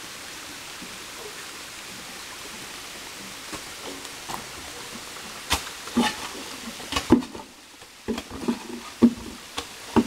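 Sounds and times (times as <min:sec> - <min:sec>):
tools scraping wet gravel and mud: 0:05.4 - 0:10.0.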